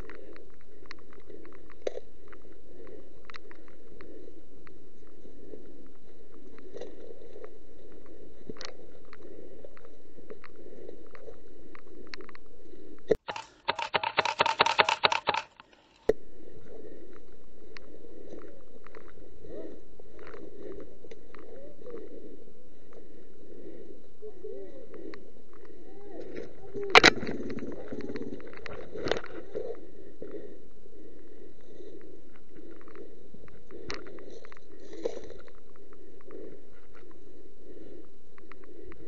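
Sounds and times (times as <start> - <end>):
rapid mechanical clicks: 13.1 - 16.1.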